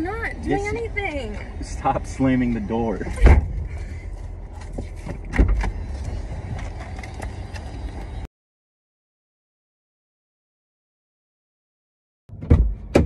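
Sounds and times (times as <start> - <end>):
car door slams: 3.2 - 3.6, 12.3 - 13.0.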